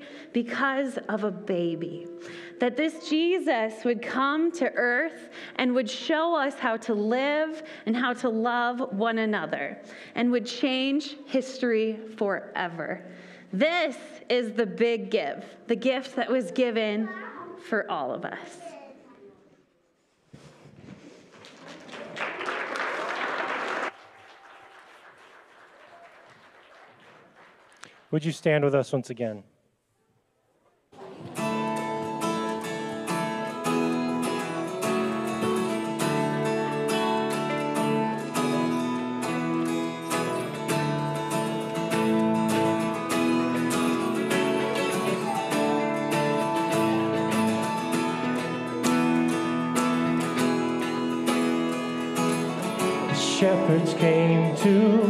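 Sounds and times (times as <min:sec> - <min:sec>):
congregation applauding: 0:21.1 - 0:28.3, 0:40.2 - 0:51.2
strummed acoustic guitar: 0:31.0 - 0:55.0
held keyboard chords: 0:31.4 - 0:55.0.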